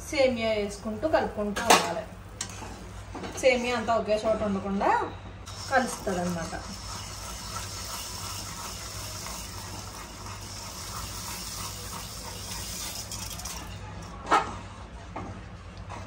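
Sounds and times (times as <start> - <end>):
boiling water hissing: 0.0 - 3.1, 5.4 - 13.9.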